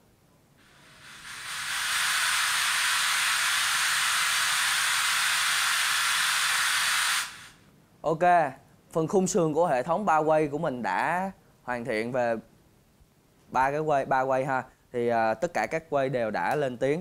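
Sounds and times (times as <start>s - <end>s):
high-pitched test noise hiss: 0.5s - 7.7s.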